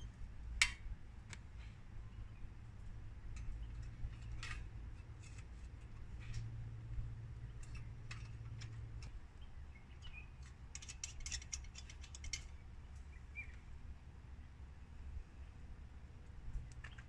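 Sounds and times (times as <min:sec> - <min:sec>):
metal stove parts clicking: 0:03.3 - 0:06.5, 0:07.5 - 0:09.2, 0:10.0 - 0:12.6.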